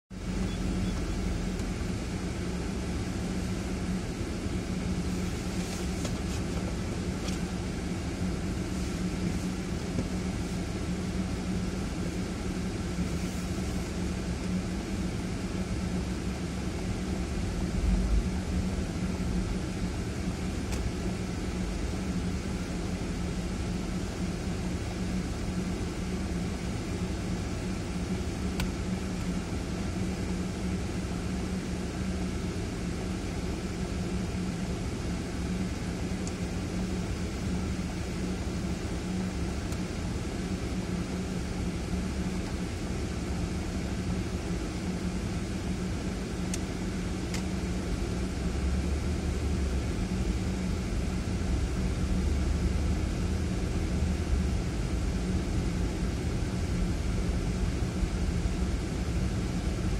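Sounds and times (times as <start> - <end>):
car engine humming: 0.2 - 31.4.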